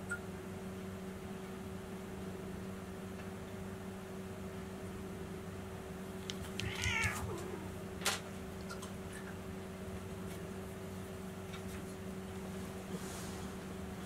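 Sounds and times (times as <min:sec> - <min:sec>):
steady low hum: 0:00.0 - 0:14.0
cat meowing: 0:06.5 - 0:07.8.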